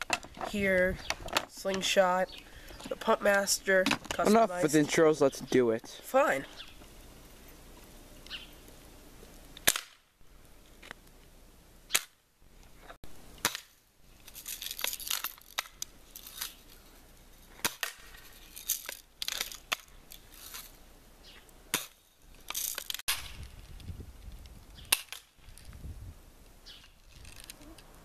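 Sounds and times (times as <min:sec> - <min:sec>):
gun clicks and rattles: 0:17.9 - 0:20.7, 0:22.3 - 0:25.8, 0:26.8 - 0:27.9.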